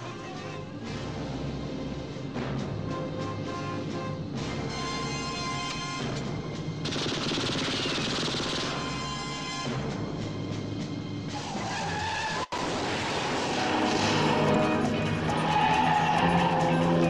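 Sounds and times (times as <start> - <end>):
car engines: 0.0 - 17.0
film music: 0.0 - 17.0
tyres squealing: 13.4 - 17.0.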